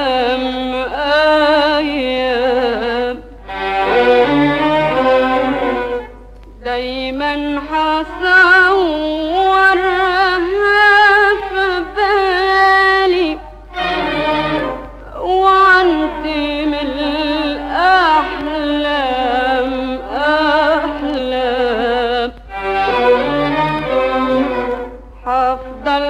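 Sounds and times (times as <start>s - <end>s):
bowed strings dance melody: 3.4s - 6.3s, 13.6s - 15.1s, 15.7s - 20.0s, 22.5s - 25.8s.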